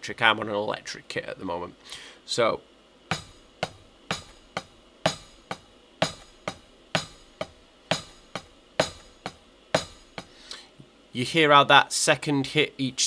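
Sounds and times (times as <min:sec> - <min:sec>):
electronic hi-hat hits: 0:03.1 - 0:10.4.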